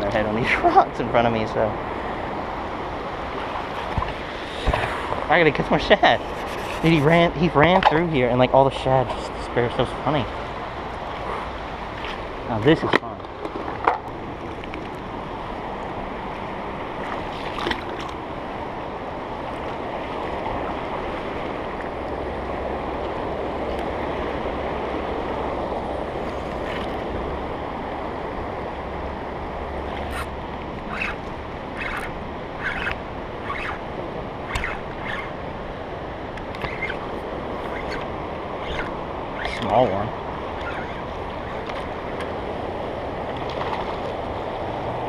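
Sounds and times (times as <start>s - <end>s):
wind buffeting microphone: 0.0s - 45.0s
fishing reel clicking: 30.9s - 31.2s, 31.8s - 33.8s, 34.5s - 35.3s, 36.4s - 39.8s, 40.6s - 41.0s.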